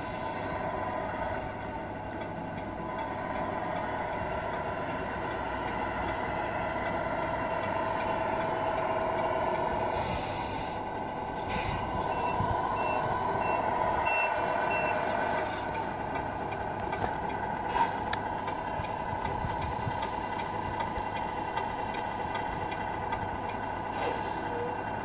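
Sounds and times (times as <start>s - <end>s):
diesel engine sound: 0.0s - 25.0s
short air hisses: 10.0s - 10.8s, 23.9s - 24.6s
reversing beeper: 11.6s - 15.1s.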